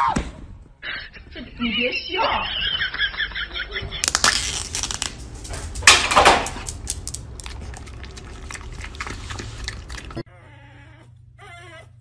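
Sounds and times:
foil lid ripping off cup: 4.0s - 5.6s.

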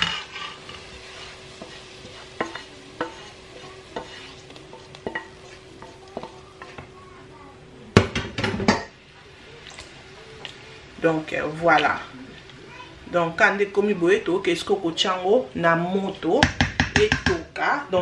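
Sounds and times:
wooden spoon scraping metal pot: 0.0s - 6.9s
light sizzling: 0.0s - 16.4s.

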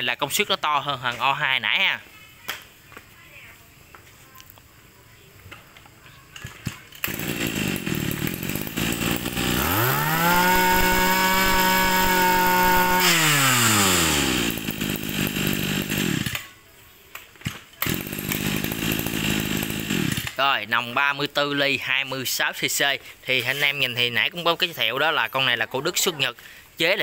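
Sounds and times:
brush cutter engine: 6.6s - 16.6s, 17.5s - 20.7s.

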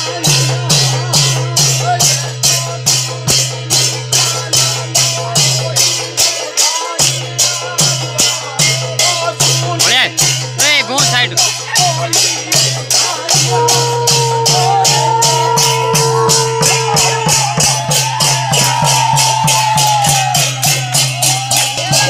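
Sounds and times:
drum beat: 0.0s - 22.0s
metal hand cymbals clashing: 0.0s - 22.0s
long held high note: 13.3s - 20.5s.

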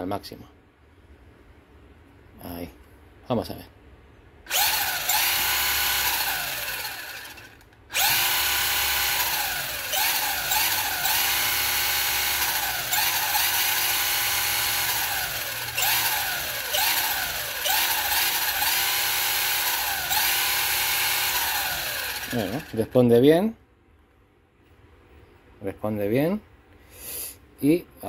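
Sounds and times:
electric motor whining: 4.5s - 22.8s.

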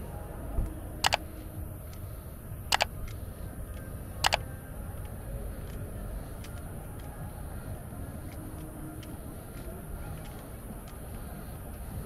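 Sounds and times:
low background rumble: 0.0s - 12.0s.

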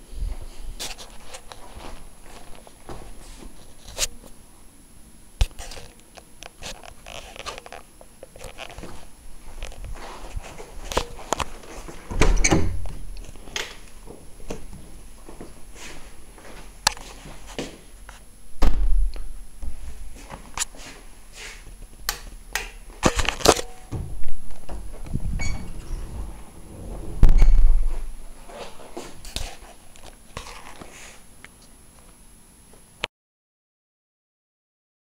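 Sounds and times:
loud rumbling knock: 23.9s - 28.4s.

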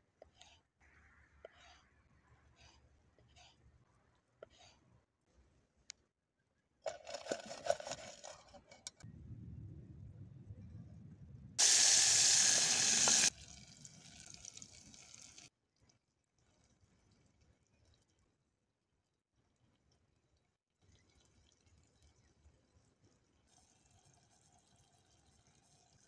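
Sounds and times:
food sizzling in a pot: 11.6s - 13.3s.

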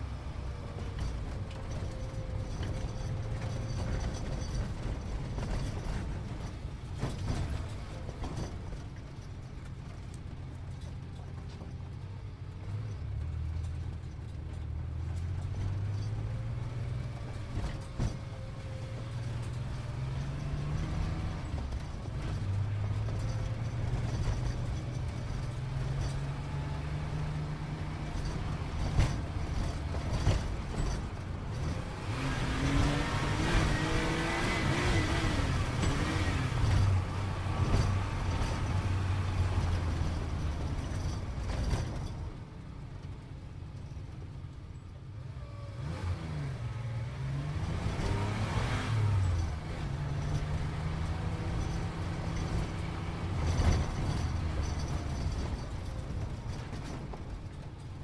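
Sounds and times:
road and tyre noise: 0.0s - 58.0s
sports car engine: 12.6s - 42.0s, 44.4s - 58.0s.

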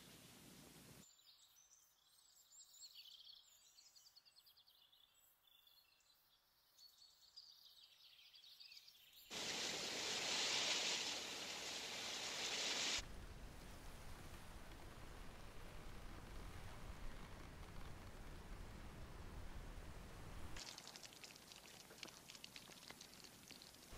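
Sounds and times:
wind rushing through leaves: 9.3s - 20.7s.

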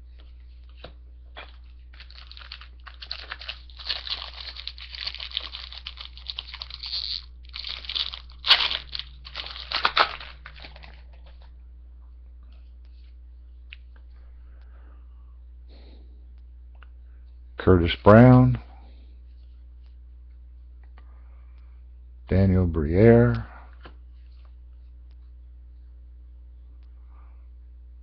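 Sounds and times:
wrapper crinkling and tearing: 1.9s - 11.1s.

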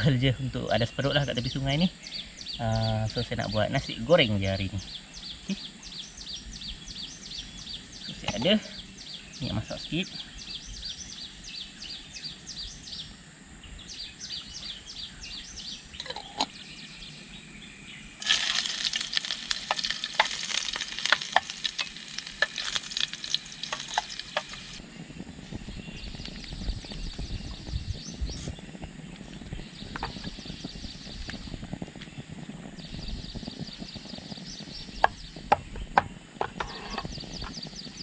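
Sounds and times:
high chirps: 15.9s - 24.8s
food sizzling in hot oil: 18.2s - 24.8s.

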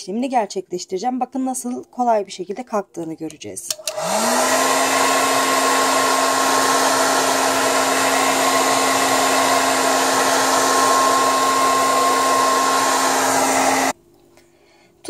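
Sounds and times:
hair dryer running: 3.7s - 14.0s.

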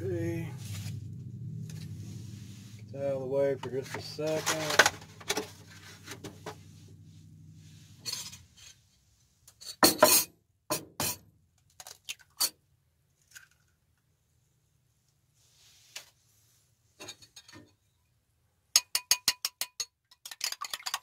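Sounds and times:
low hum: 0.0s - 8.7s
eggs cracked into bowl: 11.6s - 12.5s, 18.8s - 21.0s.

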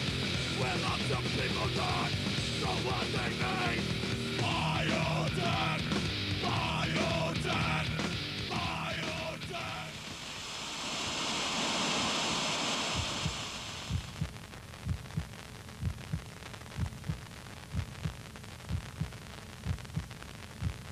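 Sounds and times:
loud static hiss: 0.0s - 20.9s
recorded heartbeat thumps: 12.9s - 20.9s.

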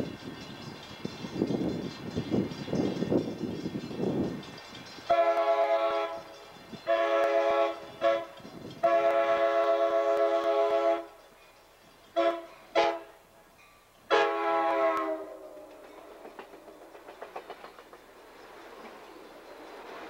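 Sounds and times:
train air horn: 5.1s - 11.2s, 12.2s - 13.2s, 14.1s - 15.7s.

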